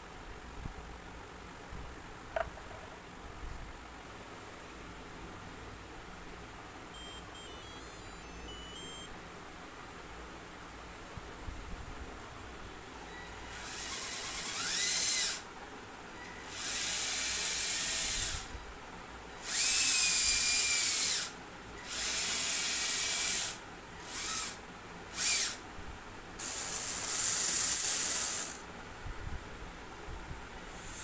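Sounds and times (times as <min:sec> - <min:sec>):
small electric motors whining: 0:07.0 - 0:09.1, 0:13.3 - 0:15.5, 0:16.4 - 0:18.6, 0:19.4 - 0:25.6, 0:26.4 - 0:28.6, 0:30.8 - 0:31.0.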